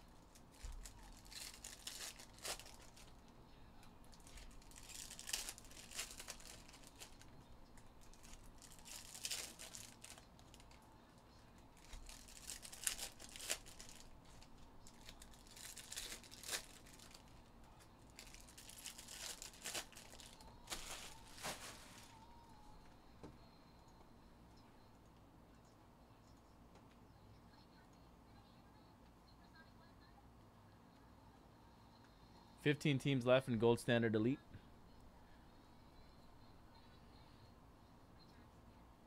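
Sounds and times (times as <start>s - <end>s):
foil wrappers crinkling and tearing: 0.0s - 3.3s, 4.1s - 10.8s, 11.8s - 17.4s, 18.1s - 22.3s.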